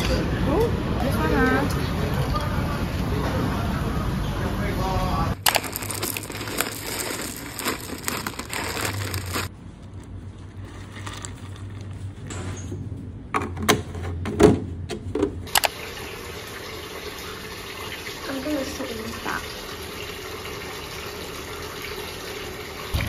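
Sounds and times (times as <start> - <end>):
cereal rattling into bowl: 5.4 - 9.5.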